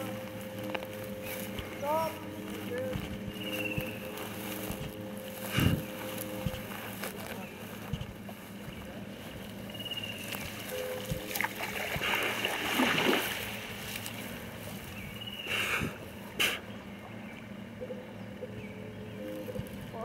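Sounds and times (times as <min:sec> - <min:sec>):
steady low hum: 0:00.0 - 0:20.0
water splashing and sloshing: 0:10.4 - 0:14.9.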